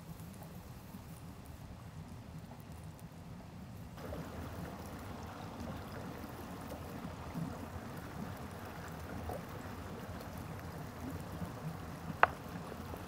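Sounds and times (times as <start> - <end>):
stream running over rocks: 4.0 - 13.0.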